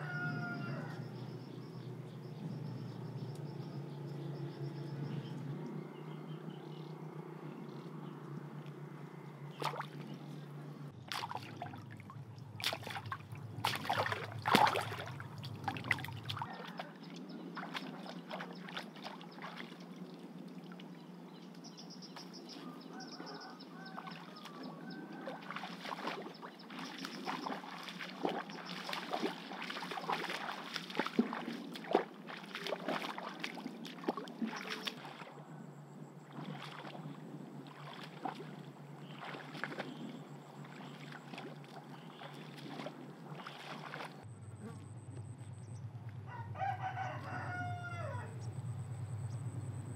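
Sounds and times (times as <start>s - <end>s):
water splashing from wading: 5.0s - 21.5s, 22.2s - 44.3s.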